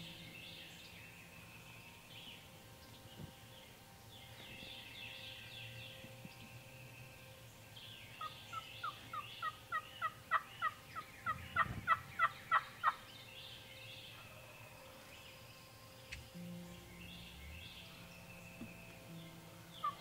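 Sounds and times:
faint songbird chirps: 0.0 - 20.0
turkey calling: 8.2 - 13.1, 19.7 - 20.0.

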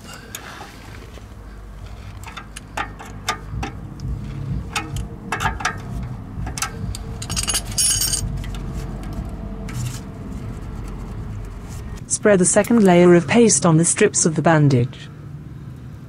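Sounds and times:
metallic clink: 6.4 - 8.3.

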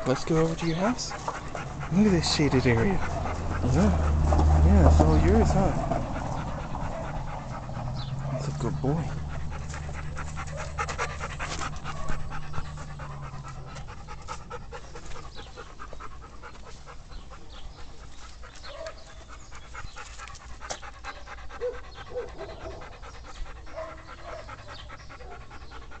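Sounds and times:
dog panting: 0.0 - 26.0.

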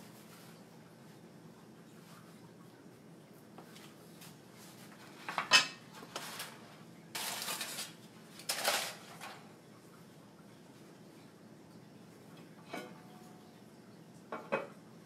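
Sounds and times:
dishes and cookware clattering: 5.0 - 9.5, 12.6 - 13.2, 14.3 - 14.8
aluminium foil crinkling: 6.0 - 9.4.

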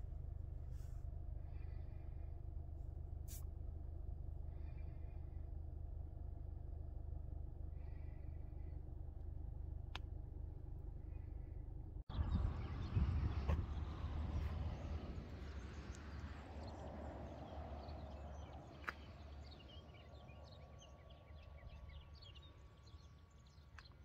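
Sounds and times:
car engine idling: 0.0 - 12.8
birds chirping: 11.0 - 24.0.

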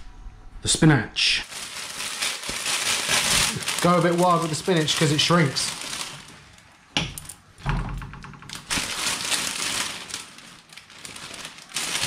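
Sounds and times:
spinach leaves rustling: 1.4 - 6.7, 8.6 - 12.0
plastic bag crinkling: 1.4 - 6.8, 8.5 - 12.0.

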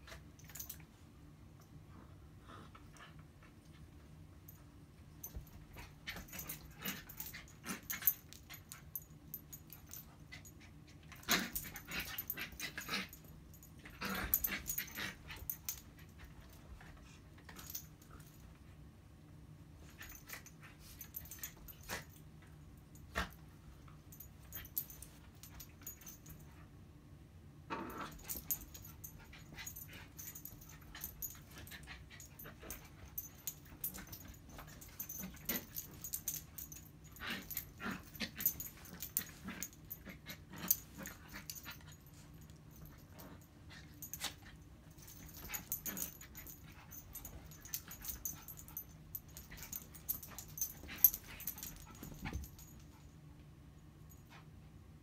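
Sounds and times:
high metallic jingling: 28.1 - 52.9.

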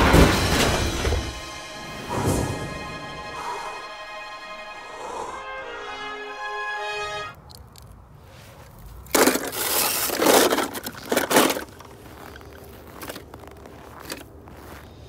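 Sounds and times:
music: 0.0 - 7.3
footsteps crunching through snow: 8.1 - 15.0.

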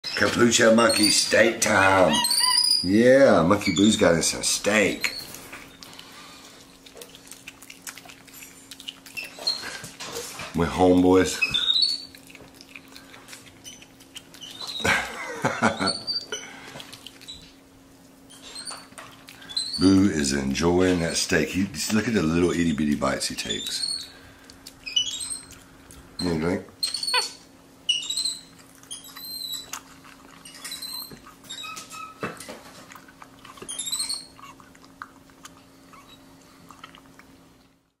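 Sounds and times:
monkey squeaks and chirps: 0.1 - 1.4, 2.0 - 2.9, 11.4 - 12.2, 13.6 - 14.8, 18.3 - 19.9, 23.5 - 24.1, 24.8 - 25.6, 26.8 - 29.8, 30.4 - 32.2, 33.6 - 34.4
monkey slurping and smacking: 4.7 - 15.2, 15.8 - 17.7, 21.7 - 26.2, 26.8 - 37.8
clicks while eating: 5.3 - 10.6, 16.2 - 17.6, 24.4 - 26.1.

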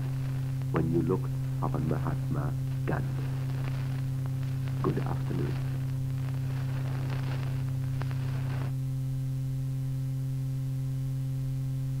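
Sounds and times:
crackling static: 0.0 - 12.0
electrical hum: 0.0 - 12.0
faint tape hiss: 0.0 - 12.0.

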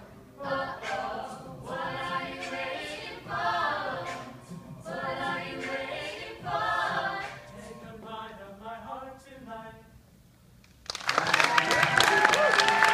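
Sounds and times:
a cappella group singing: 0.0 - 9.9.

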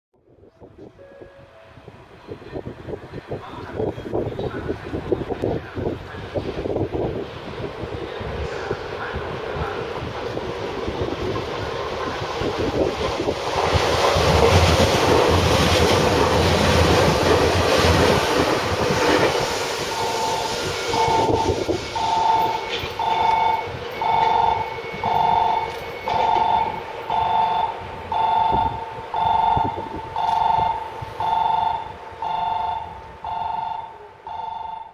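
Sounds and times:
train wheels rushing on rail: 1.8 - 34.9
electronic two-tone beep: 20.0 - 34.9.

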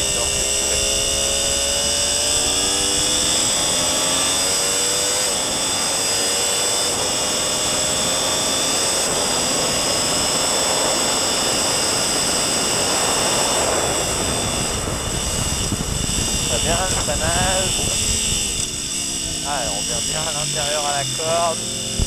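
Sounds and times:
motorcycle engine accelerating: 0.0 - 22.0
heavy wind rush: 6.9 - 22.0.

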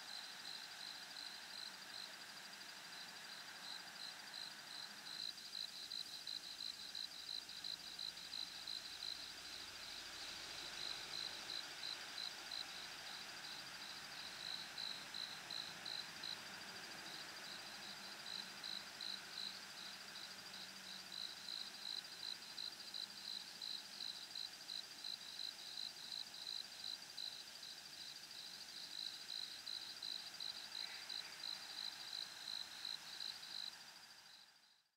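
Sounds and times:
faint steady hiss: 0.0 - 34.9
insect chirping: 0.0 - 34.9.

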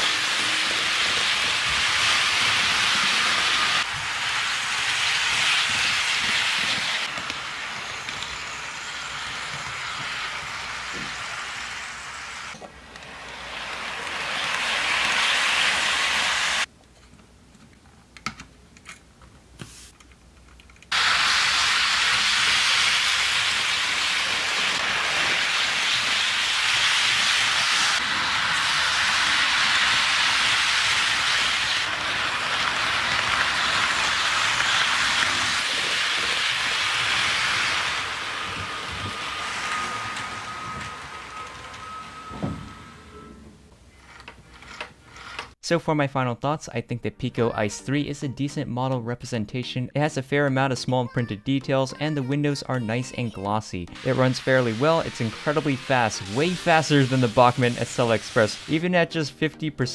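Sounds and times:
model train rushing hiss: 0.0 - 16.7, 20.9 - 41.8, 54.0 - 59.0.

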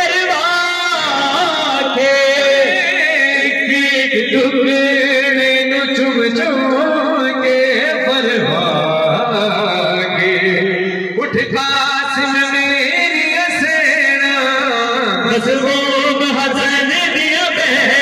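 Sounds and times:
men singing along: 0.0 - 4.4
man chanting into microphone: 0.0 - 18.0.

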